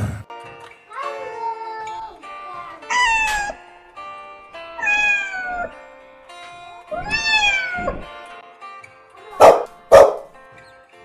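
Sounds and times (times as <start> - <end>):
background music: 0.0 - 11.0
cat meowing: 2.8 - 3.6, 4.7 - 5.9, 6.9 - 8.2
dog barking: 9.4 - 10.4.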